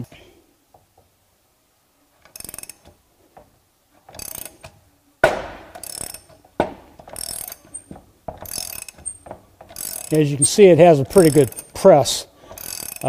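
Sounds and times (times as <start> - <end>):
ratchet wrench clicking: 2.2 - 3.0, 4.1 - 4.8, 5.7 - 6.4, 7.0 - 13.0
sharp metallic clunk: 4.6 - 9.7.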